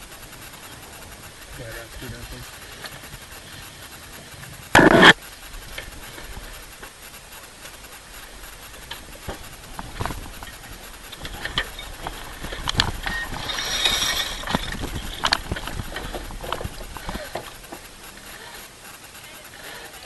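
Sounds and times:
wind rumbling on microphone: 0.0s - 18.5s
winch clicking: 0.0s - 20.0s
knocks and clicks of deck gear: 4.8s - 5.2s.

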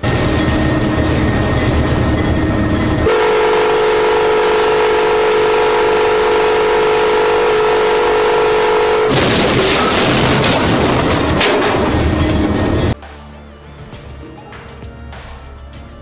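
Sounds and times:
train rumble: 0.0s - 13.0s
multi-note train horn: 2.4s - 9.2s.

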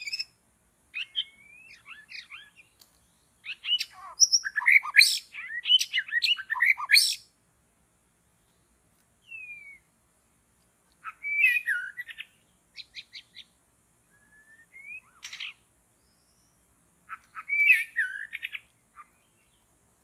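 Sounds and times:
bird singing whistled phrases: 1.0s - 2.7s, 3.4s - 7.2s, 9.2s - 9.9s, 11.0s - 13.5s, 14.1s - 15.6s, 16.2s - 19.3s.

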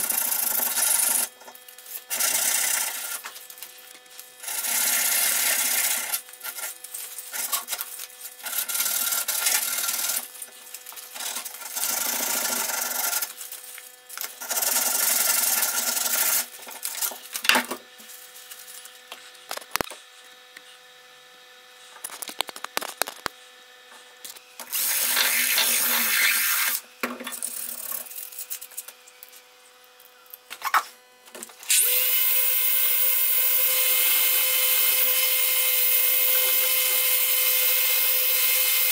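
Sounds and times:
electric orbital sander running: 0.0s - 19.1s, 24.5s - 29.5s, 31.4s - 38.9s
sandpaper rubbing on steel: 24.8s - 26.8s.

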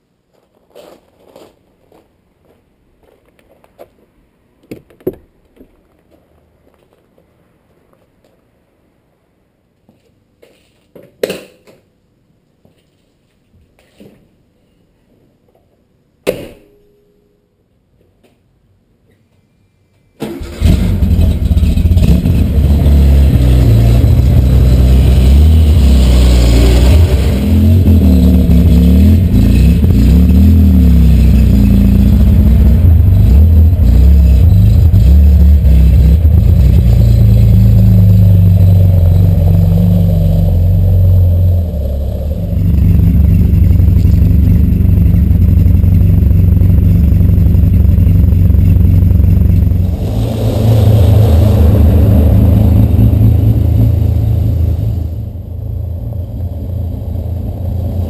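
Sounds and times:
tyres rolling on gravel: 0.3s - 4.0s
car engine starting and running: 20.2s - 58.0s
engine throttle blips: 20.2s - 58.0s.

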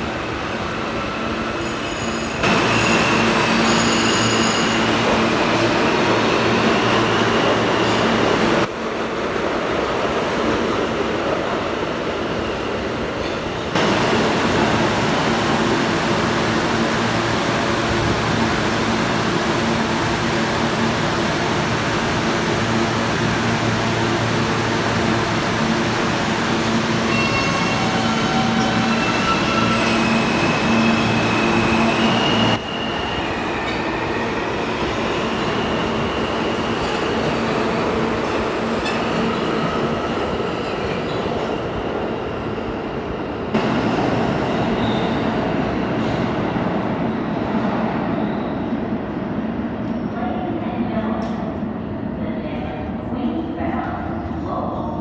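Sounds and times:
rumble of train cars: 0.0s - 55.0s
subway train electric hum: 0.0s - 55.0s
high wheel squeals: 1.6s - 5.0s.

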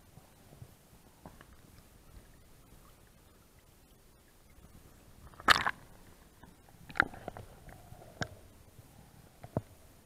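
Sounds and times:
camera splashing into water: 5.4s - 5.8s.

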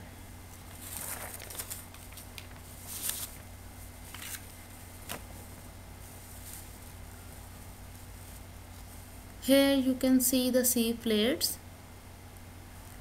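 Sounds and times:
steady low hum: 0.0s - 13.0s
faint clicks and rustles: 0.5s - 9.4s.

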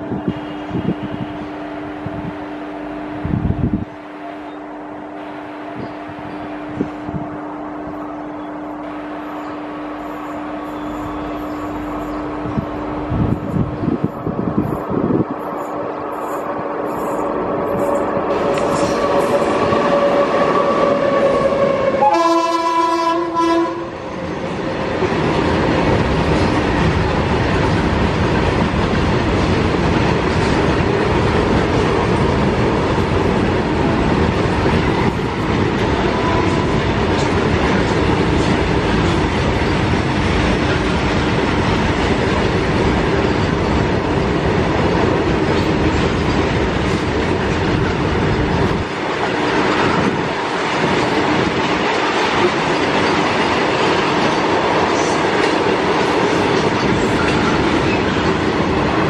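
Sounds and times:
freight train rumbling past: 0.0s - 59.0s
wheels clattering on rails: 24.0s - 59.0s.

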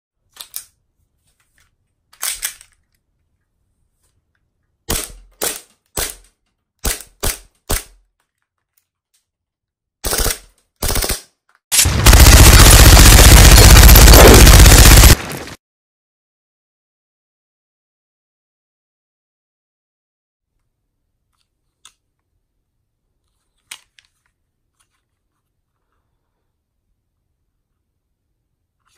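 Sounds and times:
pistol slide clacking: 2.1s - 2.8s
machine-gun fire: 10.0s - 15.6s.

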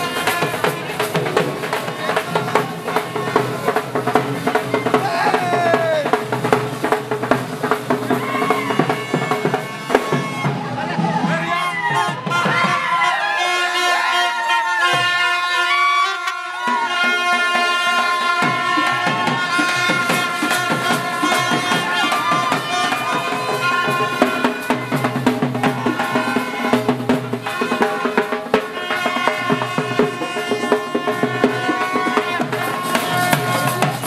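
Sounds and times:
drum-kit beat: 0.0s - 13.0s.

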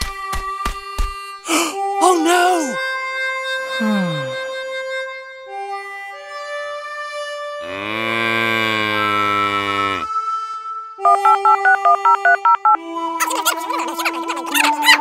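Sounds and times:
long low moo: 7.6s - 10.1s
electronic telephone-like ringing: 11.1s - 12.8s.

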